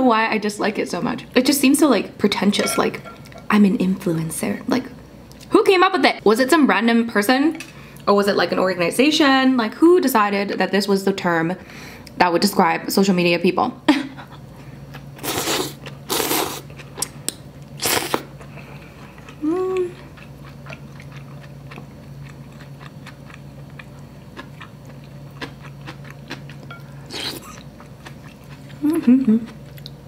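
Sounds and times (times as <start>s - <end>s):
person slurping noodles: 15.2s - 16.6s
person humming: 19.4s - 20.0s, 28.8s - 29.5s
quiet chewing with clicks: 20.1s - 26.6s, 29.5s - 30.0s.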